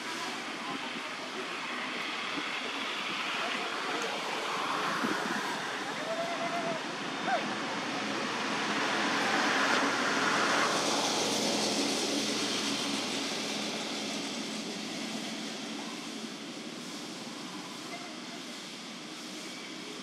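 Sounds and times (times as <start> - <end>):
rushing outdoor background noise: 0.0 - 20.0.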